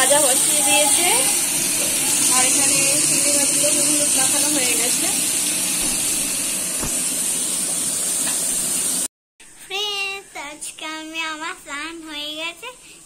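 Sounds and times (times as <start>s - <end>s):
fish sizzling in hot oil: 0.0s - 9.1s
girl singing: 9.7s - 12.9s.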